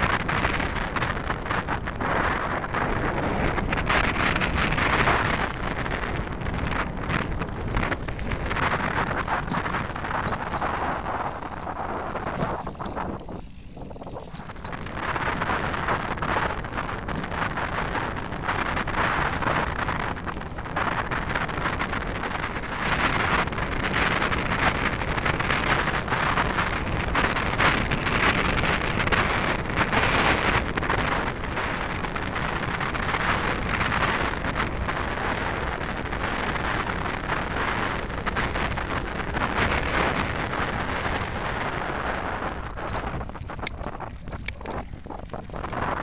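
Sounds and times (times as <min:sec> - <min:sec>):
wind rushing over microphone: 0:00.0 - 0:46.0
tyres rolling over gravel: 0:04.3 - 0:20.4, 0:28.6 - 0:46.0.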